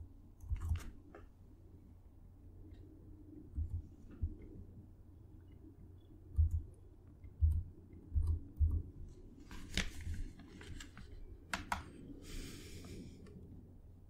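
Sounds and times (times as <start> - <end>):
dull keystroke taps: 6.3 - 8.9.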